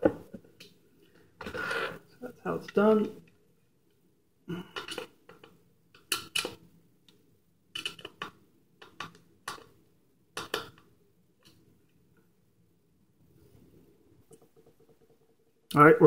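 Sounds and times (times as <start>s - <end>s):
small hard objects clicking: 7.7s - 9.7s.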